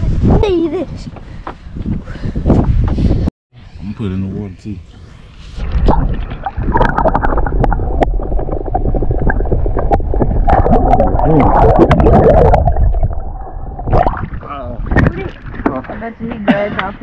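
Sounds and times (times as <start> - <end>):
water rushing and gurgling underwater: 5.6 - 15.8.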